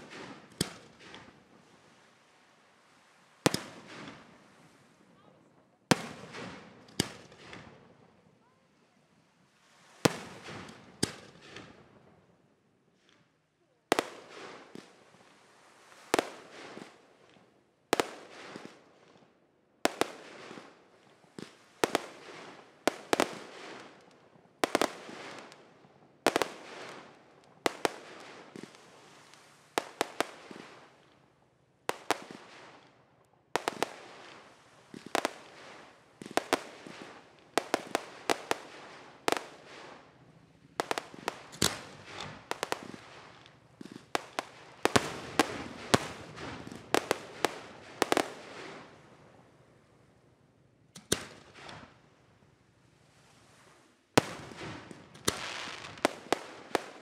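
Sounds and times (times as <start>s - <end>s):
fireworks bangs: 31.9s - 33.0s, 33.6s - 49.1s, 54.2s - 57.0s.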